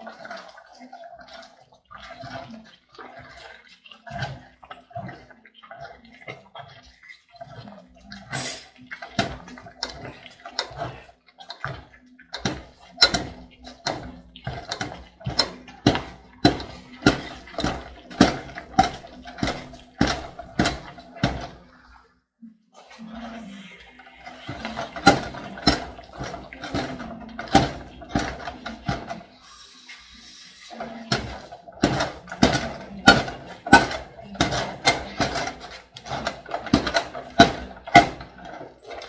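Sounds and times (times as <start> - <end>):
wooden stick stirring in metal pot: 0.0 - 22.1, 22.8 - 39.0.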